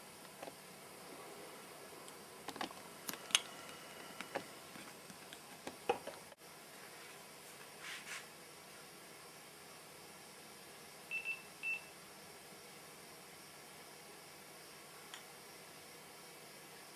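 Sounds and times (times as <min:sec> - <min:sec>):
steady hiss: 0:00.0 - 0:16.9
soft rustle: 0:06.7 - 0:08.3.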